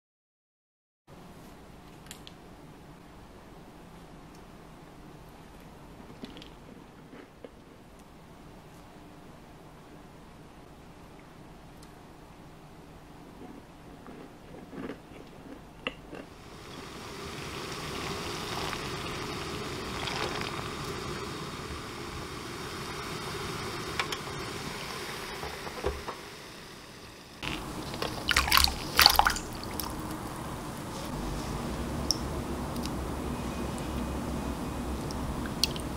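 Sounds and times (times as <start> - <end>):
water boiling and bubbling: 16.3 - 35.9.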